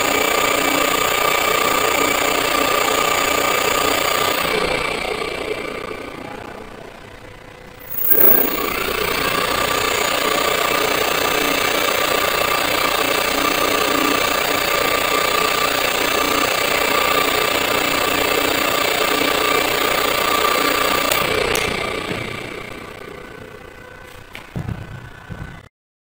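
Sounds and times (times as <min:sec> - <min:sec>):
rough mechanical hum: 0:00.0 - 0:25.7
electric motor whine: 0:07.7 - 0:24.3.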